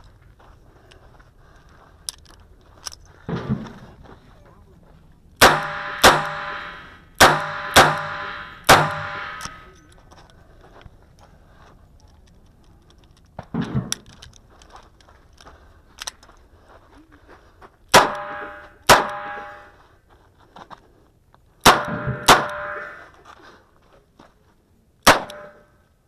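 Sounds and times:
metallic clack of revolver handling: 9.2 - 10.0.

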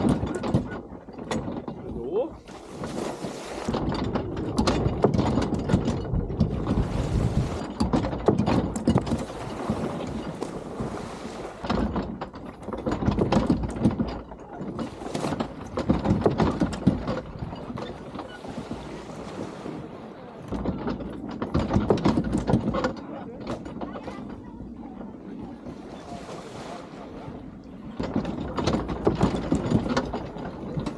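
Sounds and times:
irregular clicks and knocks: 0.0 - 2.6, 3.7 - 6.8, 7.6 - 10.6, 11.6 - 18.4, 20.5 - 25.1, 28.0 - 30.9
low rumbling wind noise: 0.0 - 30.9.

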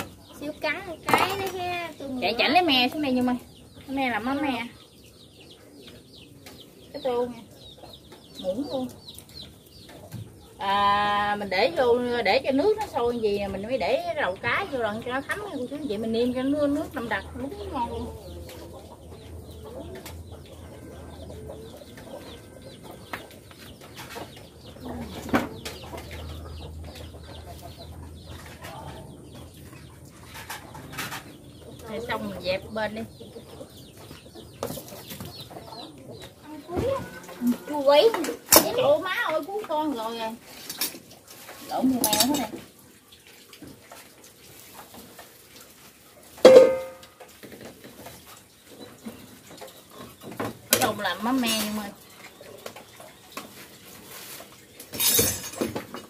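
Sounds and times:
chickens clucking: 0.0 - 56.0
faint clatter of bowls: 5.7 - 32.9, 33.7 - 56.0
dishes knocking and clinking: 46.4 - 47.1
metal kitchenware clang: 46.4 - 47.1, 54.9 - 55.7.

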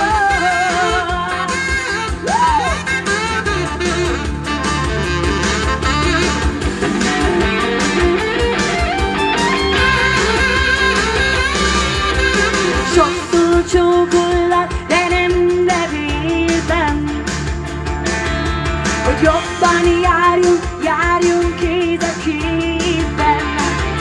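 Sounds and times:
pop song with guitar: 0.0 - 24.0.

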